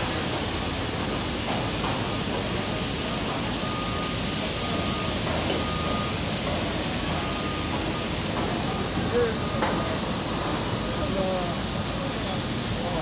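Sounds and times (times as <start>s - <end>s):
construction machinery noise: 0.0s - 13.0s
warning alarm beeping: 3.6s - 10.0s.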